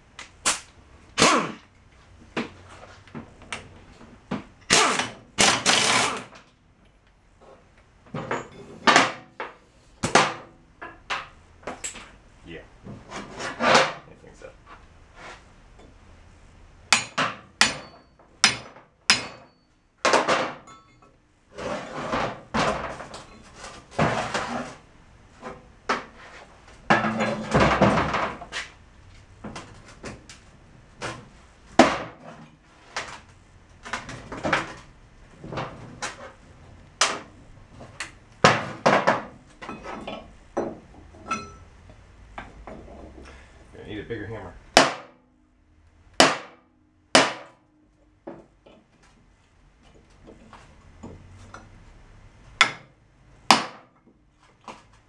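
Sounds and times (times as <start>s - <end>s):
metal housing clanking and scraping: 20.5s - 28.8s.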